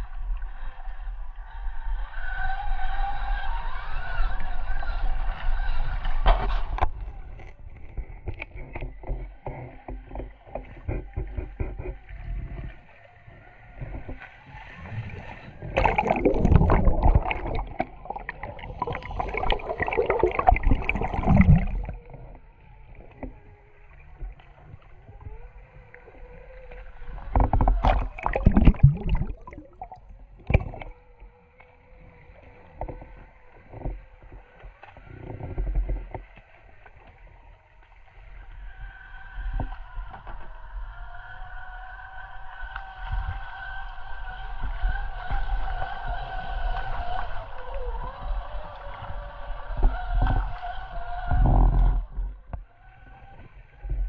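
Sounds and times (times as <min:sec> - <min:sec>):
water splashing and churning: 0:08.2 - 0:36.3.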